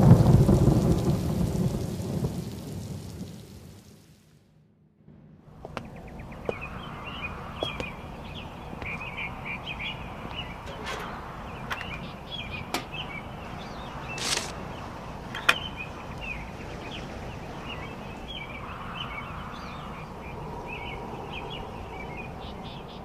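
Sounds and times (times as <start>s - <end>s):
outdoor background hum: 4.4s - 23.0s
small birds chirping: 5.6s - 23.0s.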